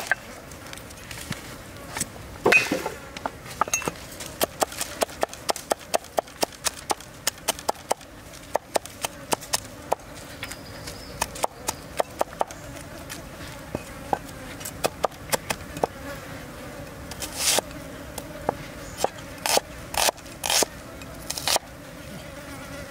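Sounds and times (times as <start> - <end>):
cleaver chopping on wooden board: 11.2 - 12.6.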